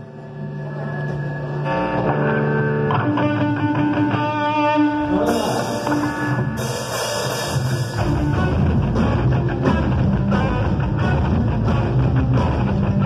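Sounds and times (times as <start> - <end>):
rock band playing: 1.4 - 13.0.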